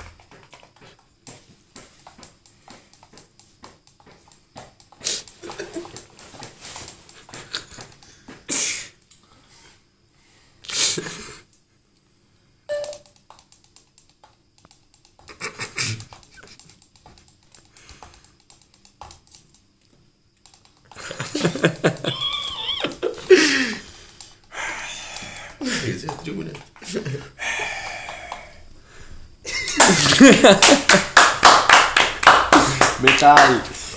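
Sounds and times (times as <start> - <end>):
tiny sticks tapping small cups: 12.8 - 19.6.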